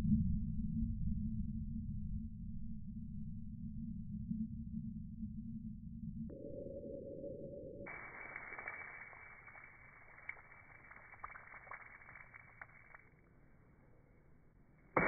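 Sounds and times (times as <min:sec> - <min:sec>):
water drips ticking: 0:07.9 - 0:13.0
rain on wet patio slabs: 0:07.9 - 0:13.1
water balloon bursting splash: 0:07.9 - 0:13.1.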